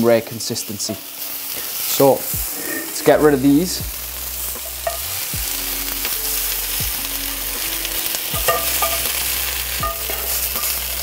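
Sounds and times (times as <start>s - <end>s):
vegetables sizzling in a frying pan: 0.0s - 11.0s
spatula scraping a pan: 2.4s - 3.8s, 8.4s - 11.0s.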